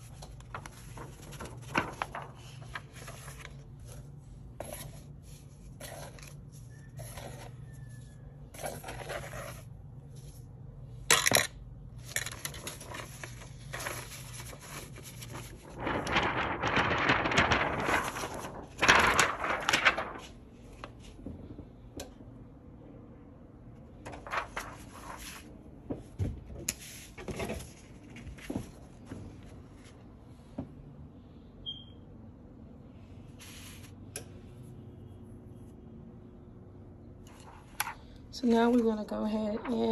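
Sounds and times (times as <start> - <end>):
plastic film rustling: 0.0 - 4.2, 12.0 - 21.3, 24.0 - 25.6.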